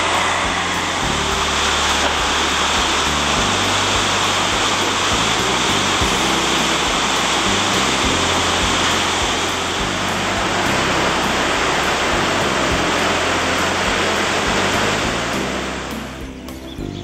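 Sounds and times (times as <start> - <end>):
river rushing over rocks: 0.0 - 16.4.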